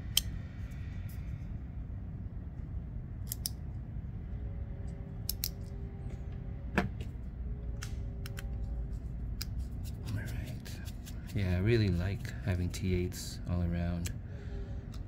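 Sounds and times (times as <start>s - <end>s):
steady low hum: 0.0s - 15.0s
knife parts clicking: 0.1s - 0.3s, 3.2s - 3.6s, 5.2s - 5.8s.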